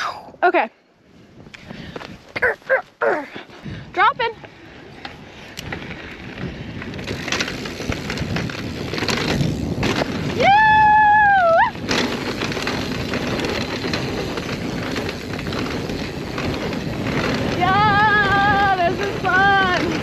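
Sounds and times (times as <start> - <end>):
wind rushing on microphone: 0.2 - 20.0
bike rattling and knocking: 1.6 - 20.0
tyres rolling over rock: 6.8 - 20.0.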